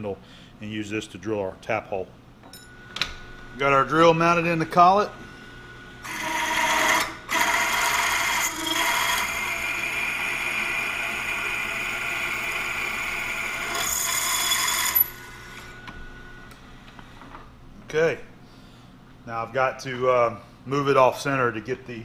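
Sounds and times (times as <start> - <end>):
drill cutting cast iron: 6.0 - 15.8.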